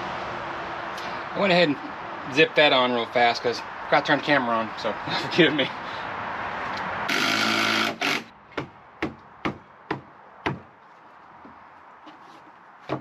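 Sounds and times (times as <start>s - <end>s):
power tool running: 7.1s - 8.3s
sharp knocks: 7.1s - 10.7s.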